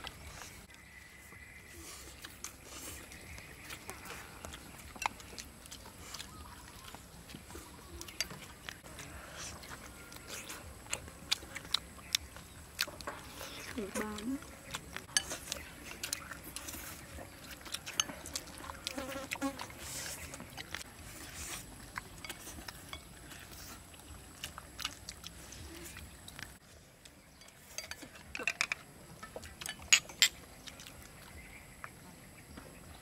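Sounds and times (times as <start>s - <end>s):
tableware clinking: 27.4s - 28.8s.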